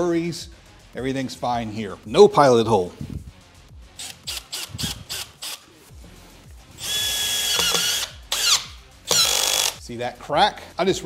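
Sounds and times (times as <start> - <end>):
drill motor whirring: 4.0 - 5.6, 6.8 - 9.8
screw setting clicks: 7.5 - 9.8.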